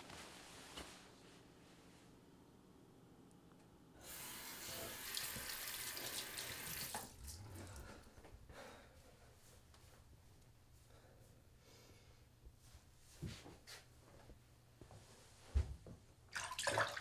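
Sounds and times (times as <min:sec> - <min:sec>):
tap water pouring into basin: 0:04.1 - 0:07.8, 0:16.3 - 0:17.0.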